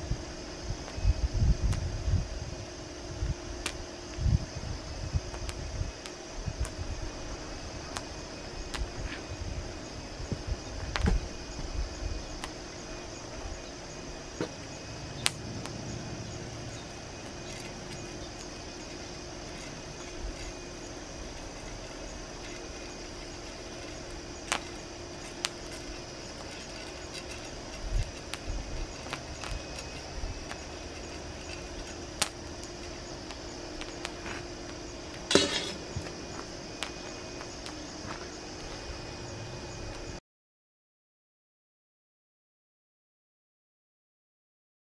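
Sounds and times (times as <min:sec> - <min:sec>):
steady background hiss: 0:00.0 - 0:40.2
popcorn kernels popping: 0:12.3 - 0:12.6, 0:15.2 - 0:37.8.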